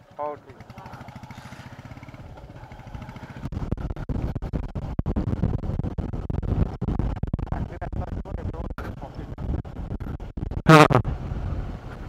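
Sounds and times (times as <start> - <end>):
motorcycle engine pulling away: 0.0 - 4.9.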